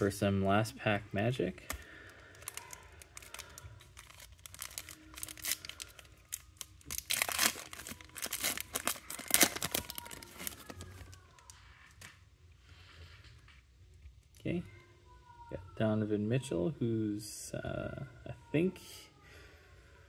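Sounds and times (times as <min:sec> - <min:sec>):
foil wrapper crinkling and tearing: 0:01.7 - 0:12.1.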